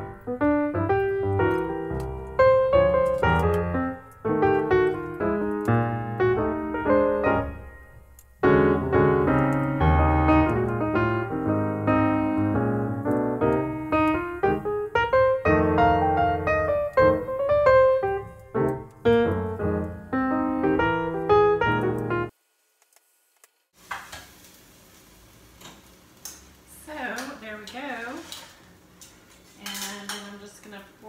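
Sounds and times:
piano music: 0.0s - 22.3s.

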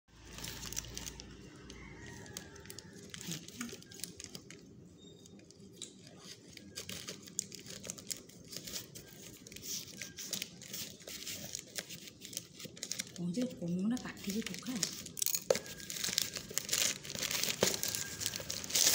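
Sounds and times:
plastic bag crinkling: 0.1s - 4.8s, 5.5s - 18.9s
scissors cutting plastic: 5.8s - 18.9s.

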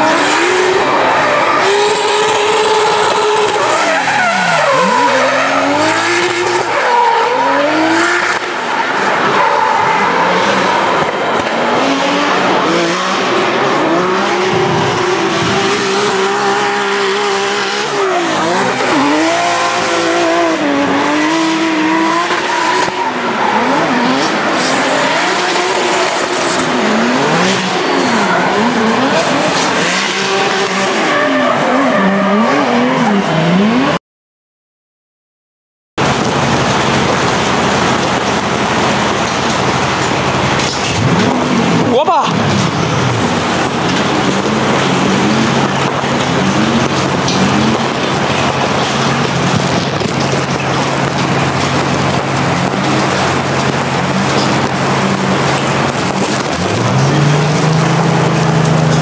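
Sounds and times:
car engine revving: 0.0s - 34.0s, 36.0s - 59.0s
tyre squeal: 1.1s - 8.3s
steady rushing noise: 36.0s - 59.0s.

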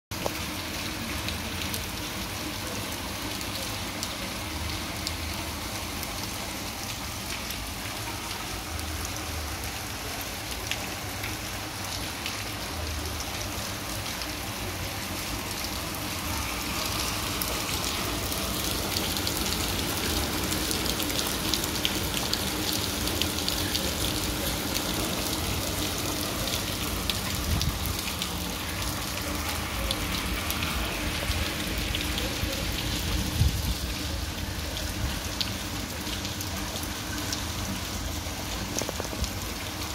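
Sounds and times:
rain on cobblestones: 0.1s - 39.9s.

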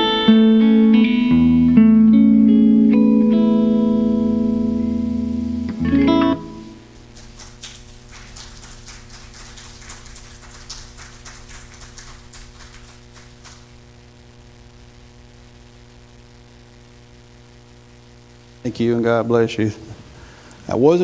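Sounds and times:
guitar amplifier hum: 0.0s - 21.0s
light applause: 7.0s - 13.8s.

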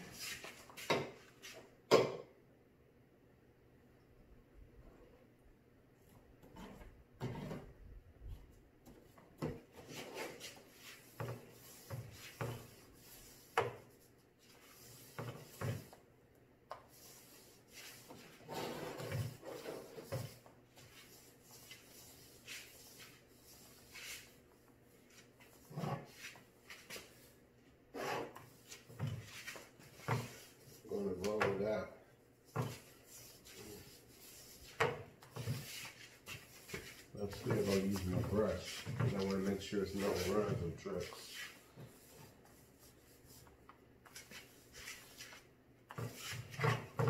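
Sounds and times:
paint roller rolling on wood: 8.9s - 16.0s, 16.7s - 31.7s, 32.4s - 47.0s.

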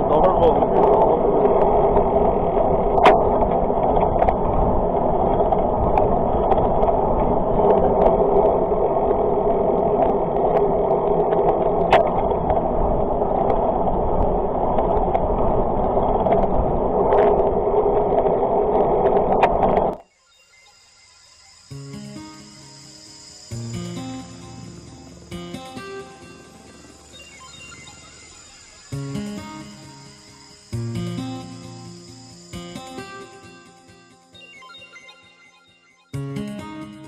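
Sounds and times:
tyre and wind noise: 1.0s - 20.0s.

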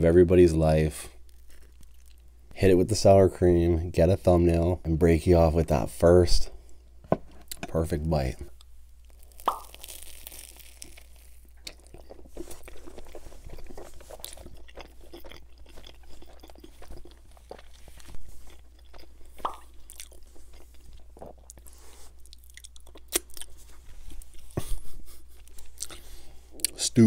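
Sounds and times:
person chewing crunchy pizza: 1.2s - 2.3s, 9.0s - 26.8s
sharp crust crackles: 9.0s - 15.1s.

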